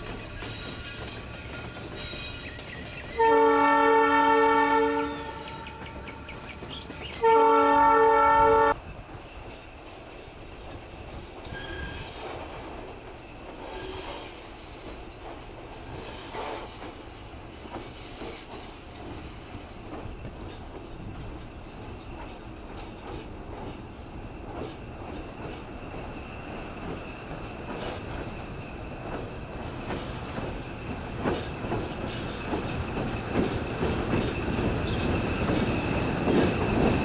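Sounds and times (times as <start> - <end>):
train running noise: 0.0 - 37.0
locomotive air horn: 3.2 - 5.8, 7.2 - 8.8
faint high squeals: 10.4 - 12.5, 15.7 - 16.8.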